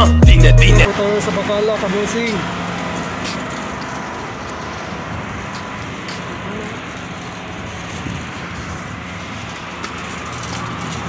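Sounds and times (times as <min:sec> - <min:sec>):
street traffic hum: 0:00.0 - 0:11.0.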